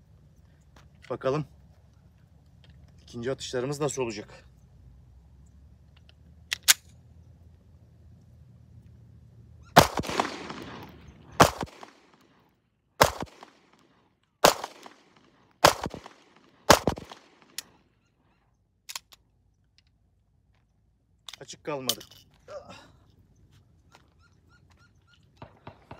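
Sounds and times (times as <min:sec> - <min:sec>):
gun handling clicks: 0:05.9 - 0:07.0, 0:13.0 - 0:17.8, 0:18.8 - 0:22.4
pistol shots with echo: 0:09.8 - 0:12.4, 0:13.0 - 0:17.7, 0:25.4 - 0:25.9.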